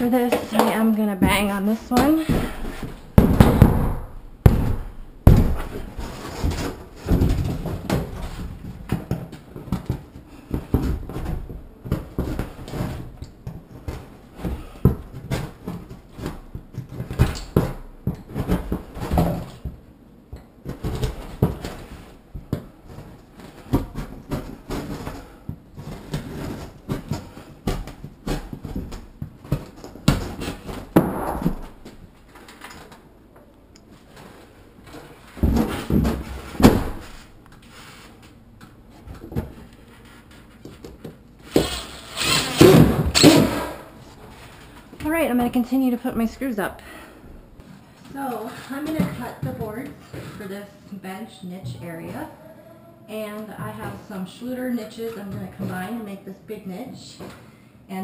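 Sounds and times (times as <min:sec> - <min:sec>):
hands banging on foam board: 0:01.2 - 0:19.8
board scraping: 0:41.5 - 0:42.9.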